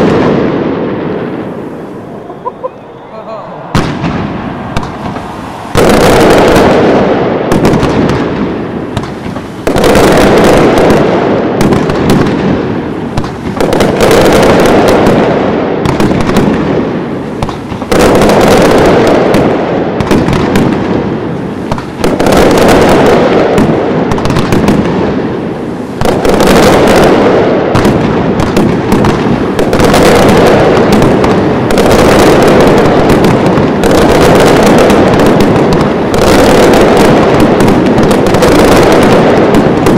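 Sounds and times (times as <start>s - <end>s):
fireworks bangs and crackling: 0.0s - 39.9s.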